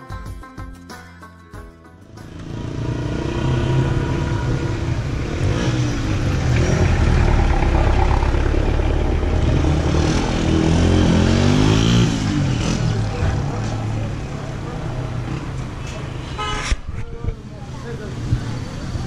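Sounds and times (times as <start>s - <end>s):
vehicle engine running: 2.2s - 11.0s.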